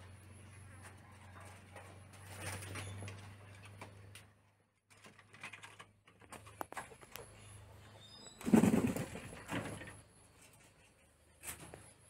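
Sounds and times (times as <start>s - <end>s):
wing flutter: 8.3s - 11.9s.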